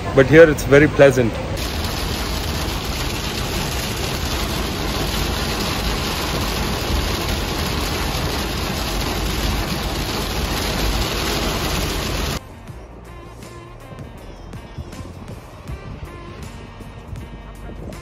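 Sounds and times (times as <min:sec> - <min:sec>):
deep road rumble: 0:00.0 - 0:18.0
heavy rain on car: 0:01.6 - 0:12.4
tyres hissing on wet road: 0:01.6 - 0:12.4.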